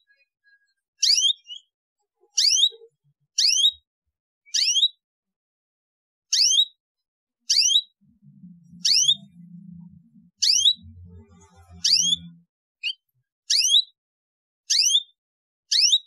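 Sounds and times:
canary chirping: 0.0s - 5.0s, 6.3s - 6.8s, 7.4s - 14.0s, 14.7s - 16.0s
faint low rumble: 8.0s - 12.5s.

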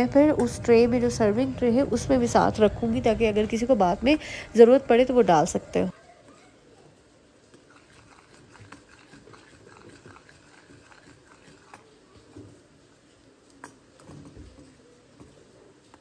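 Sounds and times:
spoon stirring thick sauce: 7.4s - 16.0s.

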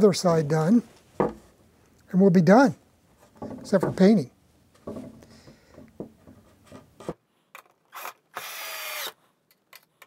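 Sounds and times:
power drill driving a screw: 7.9s - 9.2s.

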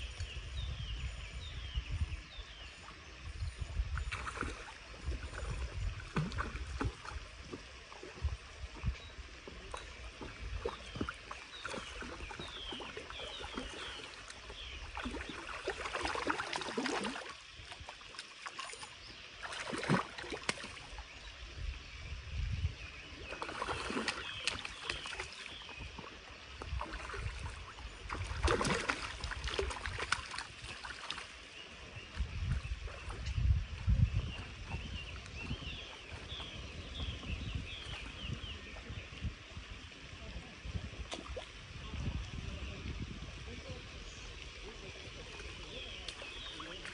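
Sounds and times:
fish splashing in water: 4.0s - 8.5s, 9.4s - 21.1s, 23.2s - 31.6s.

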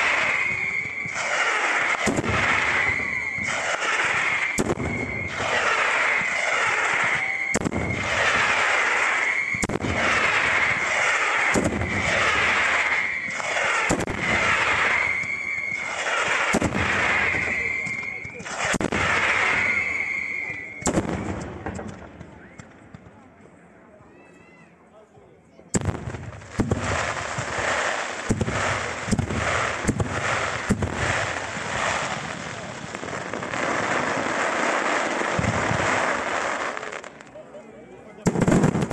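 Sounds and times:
rising shells hissing and whistling: 0.0s - 21.3s
fireworks bangs: 0.0s - 23.3s, 25.7s - 37.4s, 38.0s - 38.9s.

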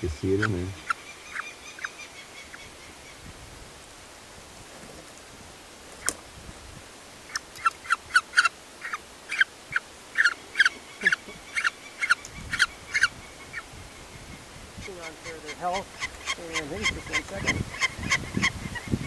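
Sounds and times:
falcon calling: 0.0s - 3.2s, 7.2s - 19.0s.

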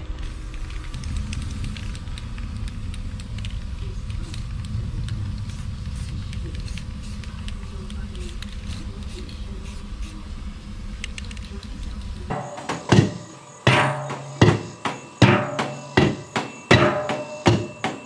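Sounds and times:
low rumble: 0.0s - 13.2s
spray paint hissing: 0.0s - 18.0s.

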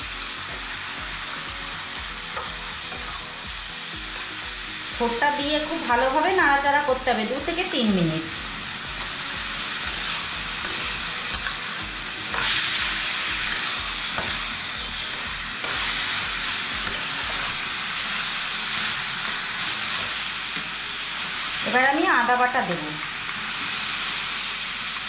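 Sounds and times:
food sizzling in hot oil: 0.0s - 25.0s
metal spatula scraping a pan: 9.8s - 17.6s.

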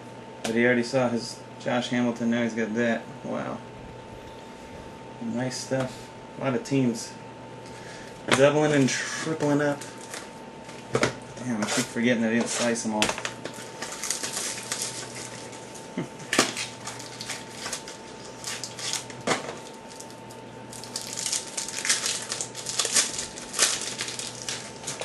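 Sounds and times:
foil wrapper crinkling: 8.0s - 10.9s, 11.6s - 25.0s.

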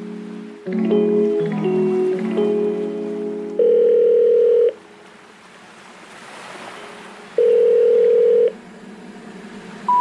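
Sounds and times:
telephone ringing tone beep: 3.6s - 4.8s, 7.4s - 8.5s.

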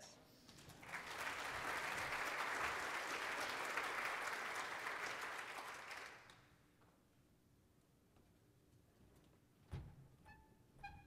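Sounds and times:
audience applauding: 0.6s - 6.5s.

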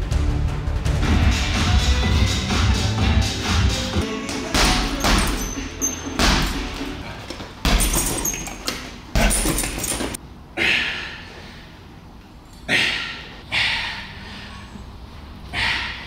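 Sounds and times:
heavy thudding impacts: 4.3s - 10.2s.

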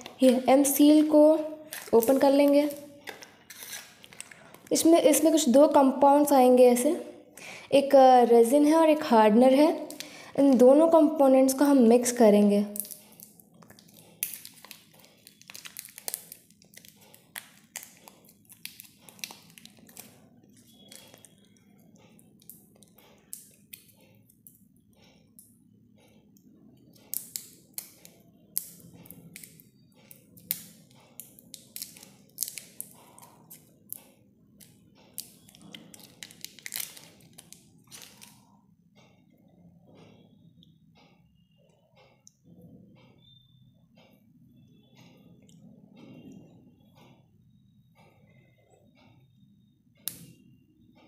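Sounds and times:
foil wrapper crinkling: 12.8s - 21.3s, 35.2s - 38.4s.

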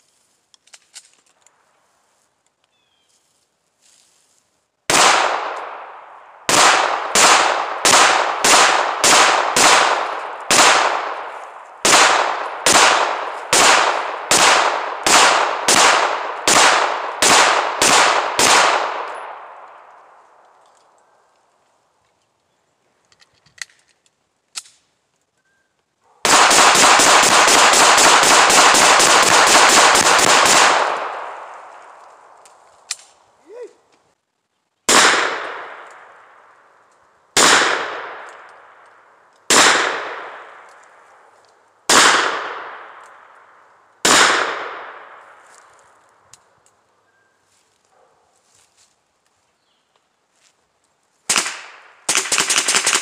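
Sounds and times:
gunshots: 4.9s - 19.7s, 26.2s - 31.9s, 34.9s - 36.2s, 37.4s - 38.8s, 39.5s - 40.7s, 41.9s - 43.0s, 44.0s - 45.4s, 51.3s - 53.0s.

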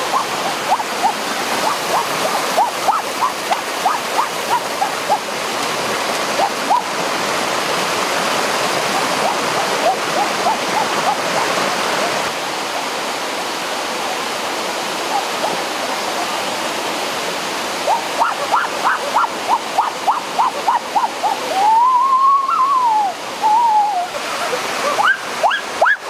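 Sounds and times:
long rising and falling call: 0.0s - 5.3s, 17.8s - 26.0s
water rushing over rocks: 0.0s - 26.0s.

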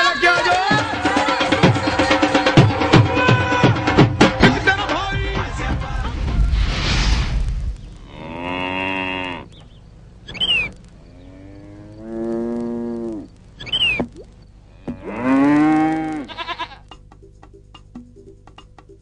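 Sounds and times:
cow mooing: 8.0s - 9.6s, 11.1s - 13.3s, 14.7s - 16.8s
short sharp squeaks: 10.3s - 10.8s, 13.6s - 14.1s.

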